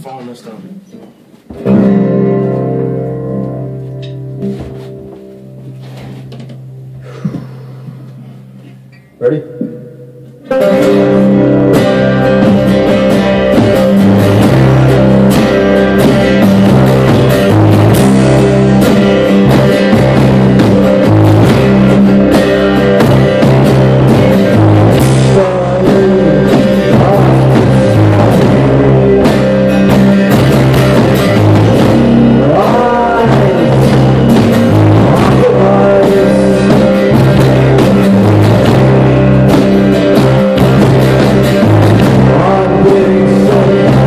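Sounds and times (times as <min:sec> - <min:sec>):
drum kit: 0:01.1 - 0:44.0
electric bass: 0:01.5 - 0:44.0
strummed acoustic guitar: 0:01.5 - 0:44.0
man singing: 0:24.7 - 0:30.2, 0:31.9 - 0:37.9, 0:42.0 - 0:44.0.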